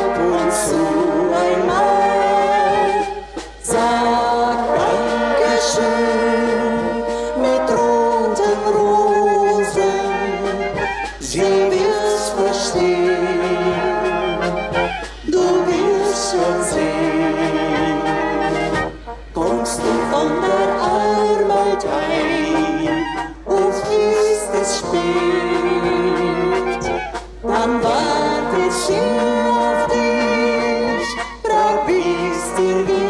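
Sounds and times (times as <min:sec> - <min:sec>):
brass band playing: 0:00.0 - 0:33.0.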